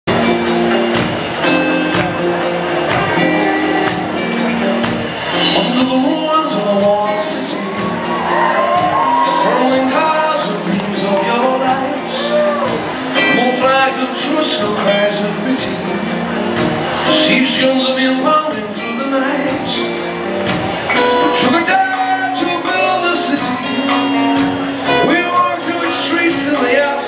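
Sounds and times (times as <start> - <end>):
live band playing: 0.1 - 27.0
quick percussion beat: 0.1 - 27.0
man singing wordless notes: 5.4 - 8.2, 9.2 - 12.6, 13.2 - 16.3, 17.1 - 20.2, 21.0 - 24.0, 24.9 - 27.0.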